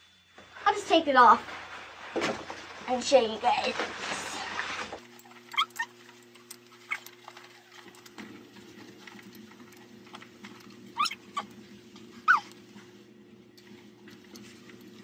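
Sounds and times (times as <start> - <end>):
high whining squeaks: 11.0 - 11.5.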